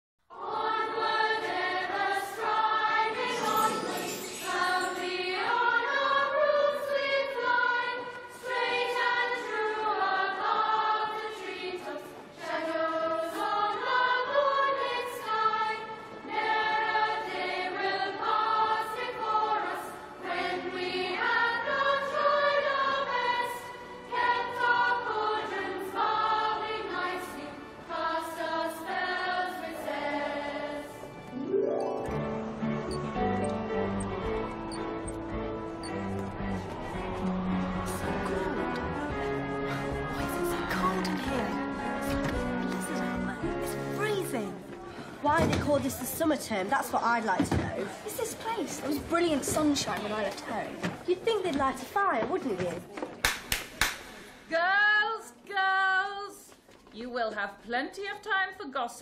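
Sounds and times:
choir singing with musical backing: 0.3 - 46.5
short bright high accents: 3.2 - 5.5, 31.3 - 34.8.

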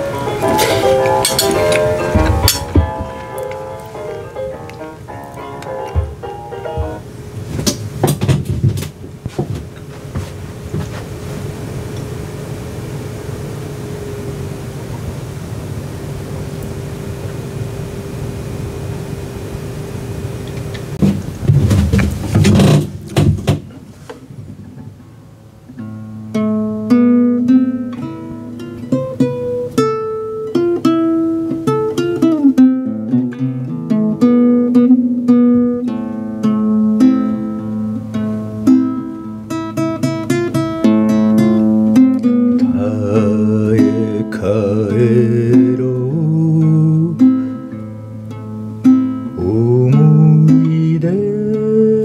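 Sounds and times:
acoustic guitar picking melody: 0.0 - 52.0
man singing: 42.6 - 47.5, 49.4 - 52.0.

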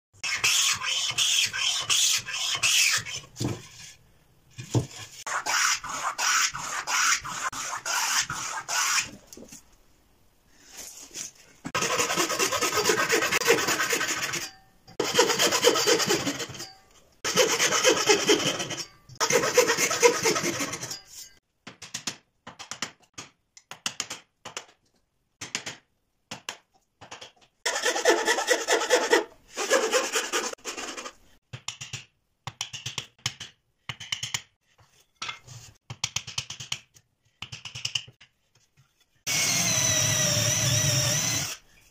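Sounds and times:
hand plane shaving wood: 11.8 - 14.4, 15.0 - 16.4, 17.3 - 20.8, 27.7 - 31.1
saw cutting wood: 11.8 - 16.7, 17.3 - 21.0, 27.7 - 31.1, 39.3 - 41.6.

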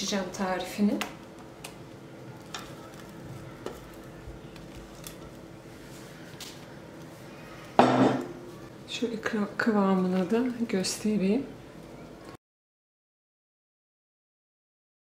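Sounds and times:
spatula squishing thick cream: 2.3 - 7.6
knock: 7.8 - 8.3.

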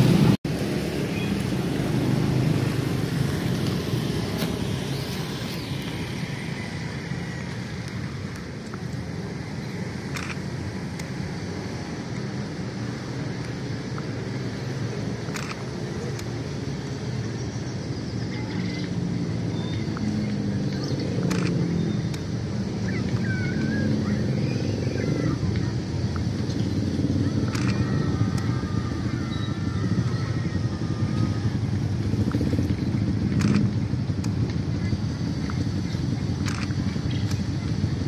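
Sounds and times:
distant train rumble: 0.0 - 38.0
sharp clicks: 10.0 - 11.2, 15.2 - 16.3, 20.7 - 22.3, 27.4 - 28.5, 32.2 - 34.6, 36.3 - 37.8.

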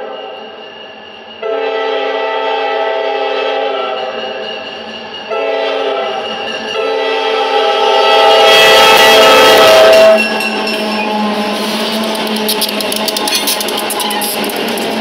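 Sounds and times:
rail noise: 0.0 - 15.0
locomotive air horn chord: 1.4 - 4.0, 5.3 - 10.2
locomotive engine noise: 4.1 - 15.0.

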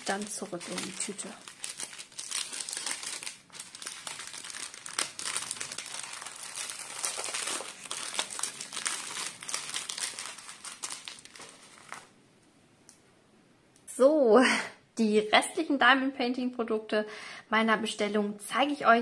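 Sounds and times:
plastic bag crinkling: 0.0 - 12.2.

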